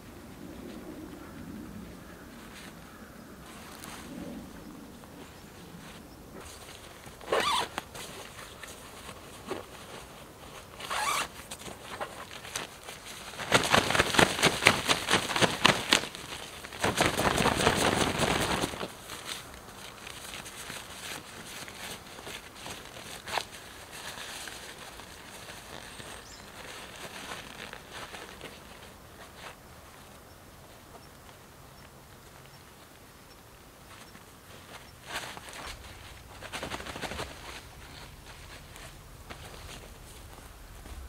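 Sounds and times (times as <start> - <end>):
zipper being pulled: 6.6 - 8.3, 10.8 - 11.4.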